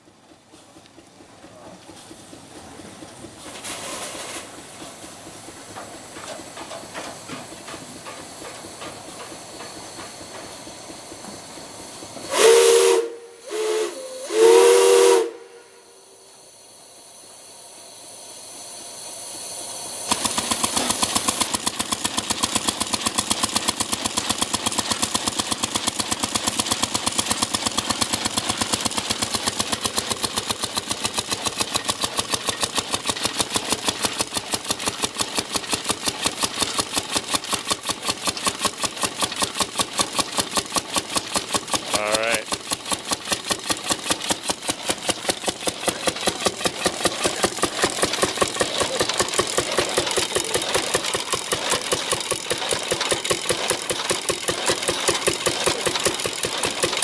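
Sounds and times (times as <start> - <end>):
steam engine exhaust beats: 0.0 - 57.0
steam whistle blasts: 12.2 - 17.4.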